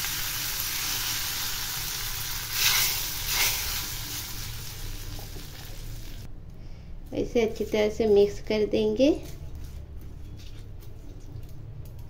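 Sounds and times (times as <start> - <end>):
hot oil sizzling: 0.0 - 6.3.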